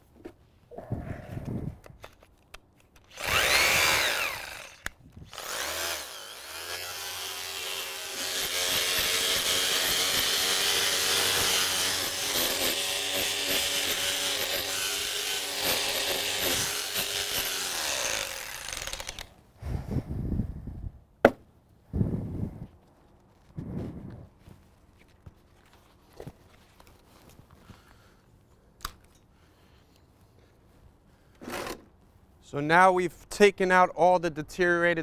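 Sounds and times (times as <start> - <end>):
electric chipping gun on stone: 3.1 - 19.4.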